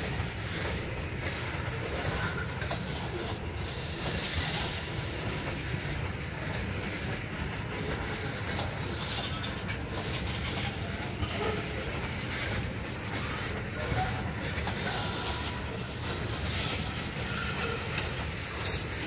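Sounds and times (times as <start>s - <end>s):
train wheels rumbling on rails: 0.0s - 19.0s
high wheel squeal: 3.5s - 6.1s, 14.1s - 18.0s.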